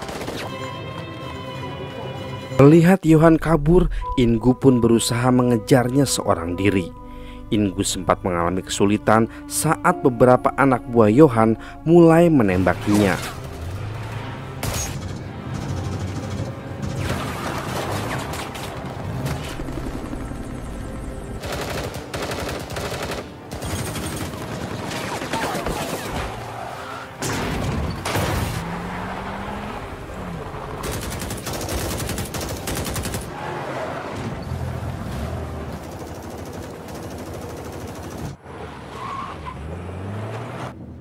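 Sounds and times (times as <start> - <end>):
vehicle engines running: 12.4 - 22.2, 28.0 - 41.0.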